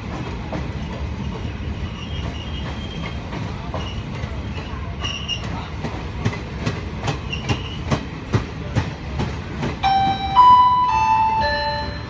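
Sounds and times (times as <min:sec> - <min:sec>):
train wheels clicking over rail joints: 0:00.0 - 0:10.5
electronic announcement chime: 0:09.8 - 0:12.0.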